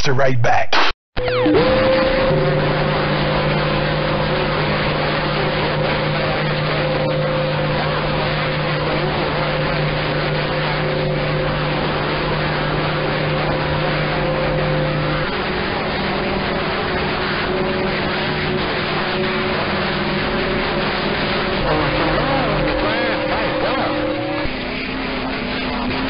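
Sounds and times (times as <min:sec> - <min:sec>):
radio hum and whistle tones: 0:00.0 - 0:26.0
radio rushing noise: 0:00.0 - 0:26.0.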